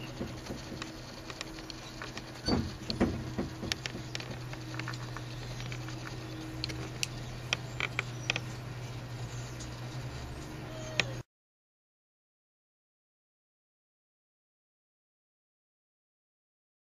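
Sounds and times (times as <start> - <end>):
small clicks and ticks: 0.0 - 11.2
steady low hum: 0.0 - 11.2.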